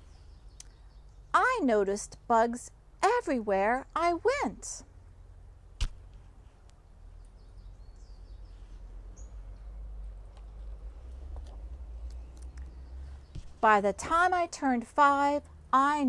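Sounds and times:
sharp click: 5.8s - 6.0s.

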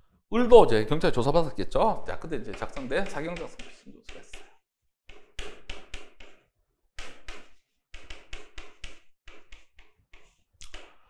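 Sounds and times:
chalk tapping and scratching on board: 2.2s - 11.0s.

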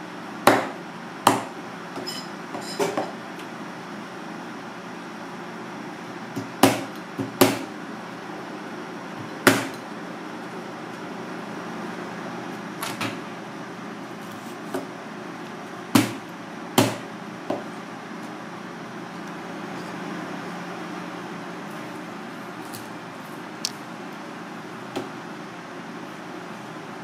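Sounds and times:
steady background hum: 0.0s - 27.0s
knife chopping on plastic board: 0.4s - 1.5s, 6.4s - 7.7s, 9.4s - 9.8s, 15.9s - 16.2s, 16.8s - 17.7s.

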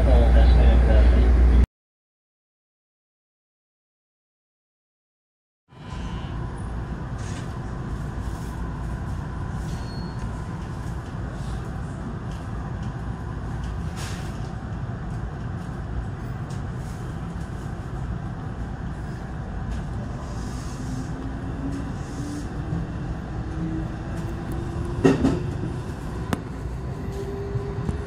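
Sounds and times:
train low rumble: 0.0s - 1.6s, 5.7s - 28.0s.

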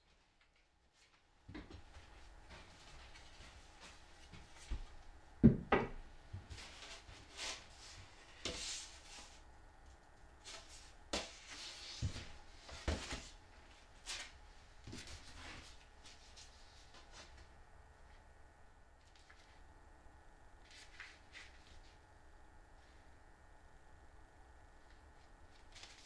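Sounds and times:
wooden boards knocking: 5.4s - 6.0s.

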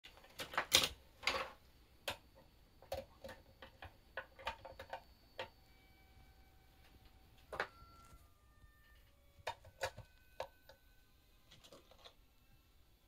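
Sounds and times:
pens clicking and clattering: 0.1s - 2.2s.

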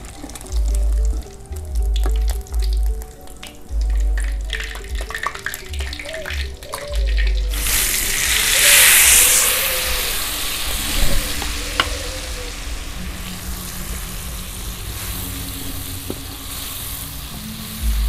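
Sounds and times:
chilli paste sizzling in hot oil: 7.4s - 18.0s.

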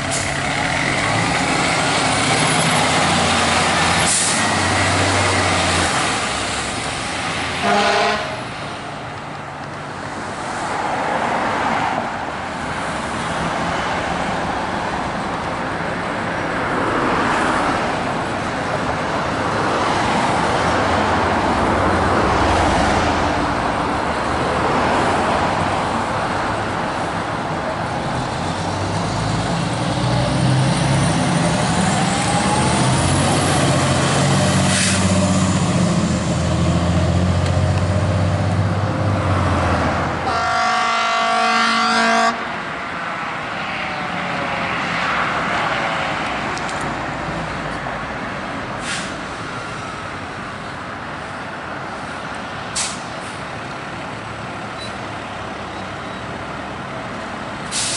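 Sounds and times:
fire engine rumbling: 0.0s - 57.9s
horn blast: 7.6s - 8.4s, 40.2s - 42.5s
fire engine sirens wailing: 30.3s - 36.0s, 40.2s - 42.5s.

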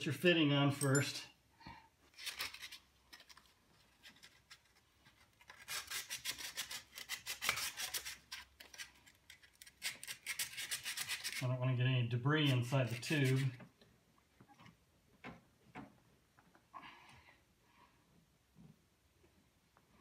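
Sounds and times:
sandpaper scraping metal tube: 5.5s - 8.8s, 9.8s - 11.5s, 12.4s - 13.6s.

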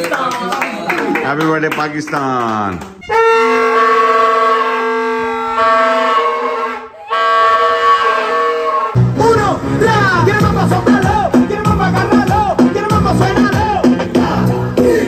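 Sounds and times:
plastic toy trumpets blaring: 3.0s - 9.0s
music: 9.0s - 15.0s.

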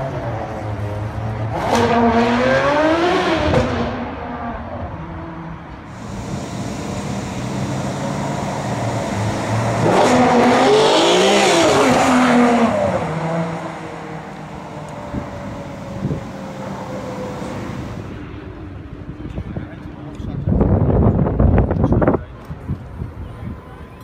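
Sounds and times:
sports car accelerating past: 5.9s - 18.2s.

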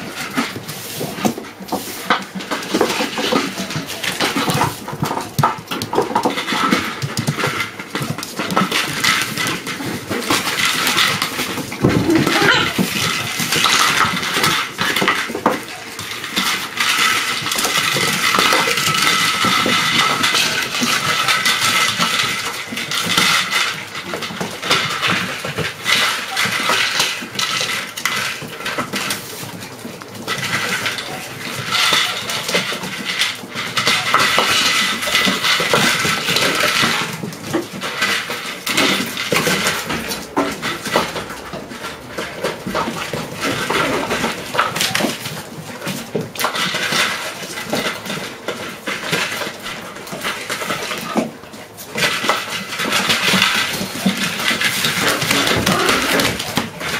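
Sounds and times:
claws clicking on wooden floor: 0.0s - 56.9s
toys knocking: 10.3s - 14.2s
puppies whining: 11.5s - 13.4s.

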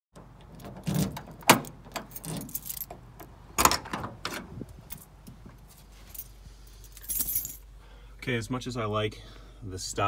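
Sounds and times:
car door opening clatter: 0.2s - 3.0s
keys jangling: 1.9s - 2.9s, 5.7s - 7.6s.

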